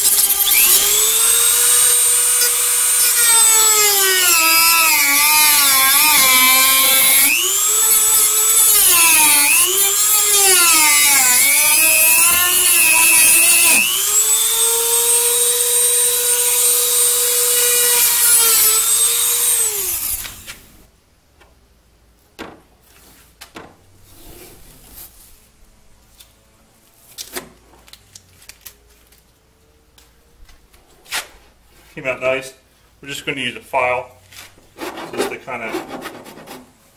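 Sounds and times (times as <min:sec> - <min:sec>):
rotary tool cutting plastic: 0:00.0 - 0:20.6.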